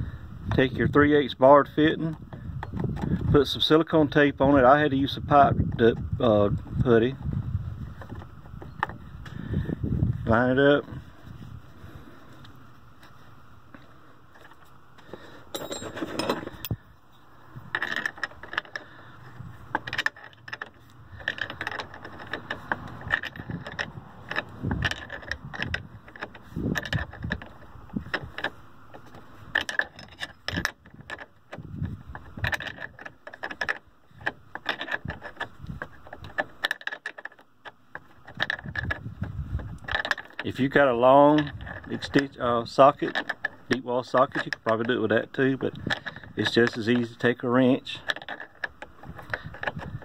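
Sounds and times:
wrench clinking on brass fitting: 15.5 - 16.8.

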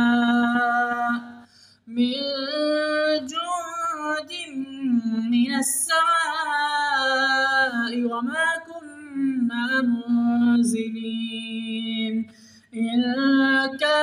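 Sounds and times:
melodic recitation chanting: 0.0 - 1.4.

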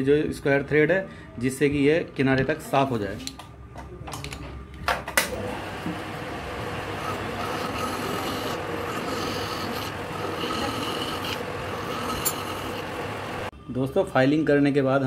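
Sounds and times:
lathe running: 5.4 - 13.5
hand file rasping on metal thread: 6.9 - 13.0.

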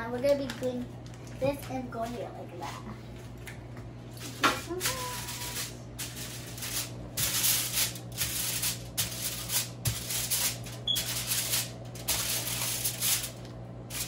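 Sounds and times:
aluminium foil rustling and crinkling: 0.0 - 3.4, 4.2 - 14.0.

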